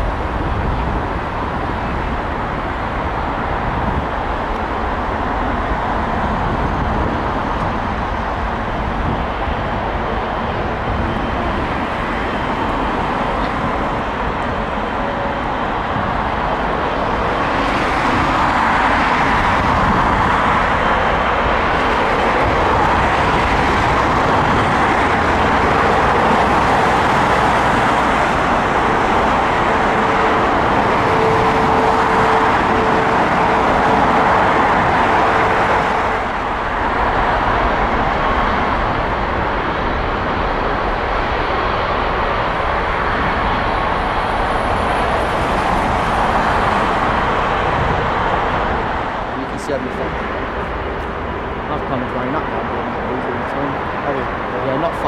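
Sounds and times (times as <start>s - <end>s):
jet engines roaring: 0.0s - 55.0s.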